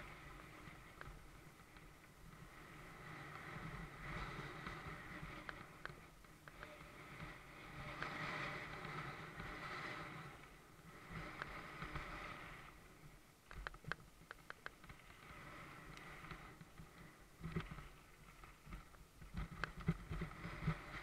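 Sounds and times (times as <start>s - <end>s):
bike tyres rushing on dirt: 0.0s - 13.2s, 14.1s - 21.0s
bike clicking and rattling: 13.4s - 21.0s.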